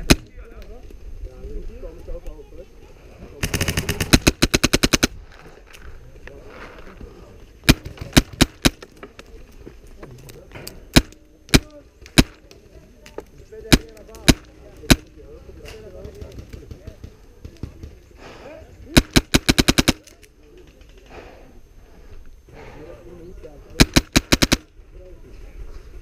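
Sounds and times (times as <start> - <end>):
full-auto gun burst: 3.4 - 5.2, 7.6 - 8.8, 10.9 - 12.4, 13.7 - 15.1, 18.9 - 20.1, 23.8 - 24.7
single sharp gunshots: 10.9 - 12.4, 13.7 - 15.1, 18.9 - 20.1, 23.8 - 24.7.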